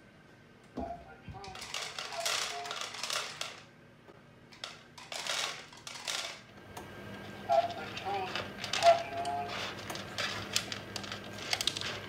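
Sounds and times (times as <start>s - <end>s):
cat crunching dry kibble: 9.6s - 12.0s.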